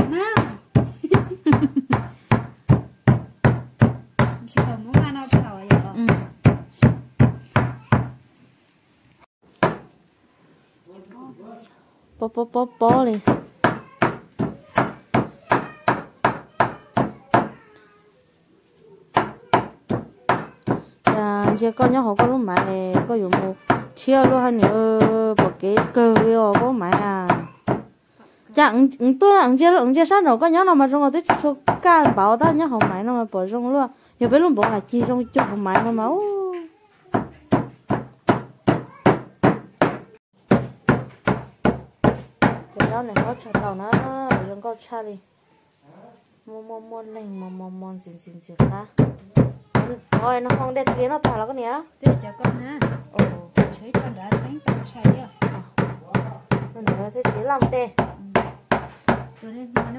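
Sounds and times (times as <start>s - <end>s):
cleaver chopping meat on wood: 1.9s - 8.2s, 9.6s - 9.9s, 37.2s - 44.5s, 52.1s - 59.9s.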